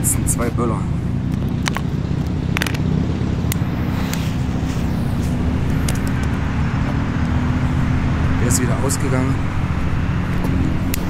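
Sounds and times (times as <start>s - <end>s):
low outdoor rumble: 0.0s - 11.0s.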